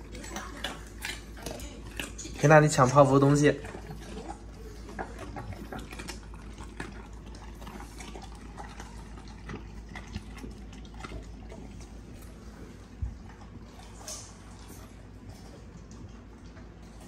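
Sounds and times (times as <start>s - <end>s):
dog chewing wetly: 0.0s - 17.0s.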